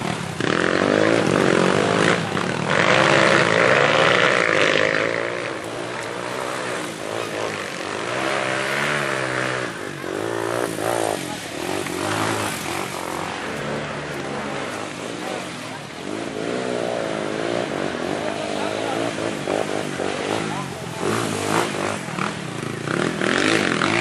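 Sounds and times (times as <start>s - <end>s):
dirt bike engines revving: 0.0s - 24.0s.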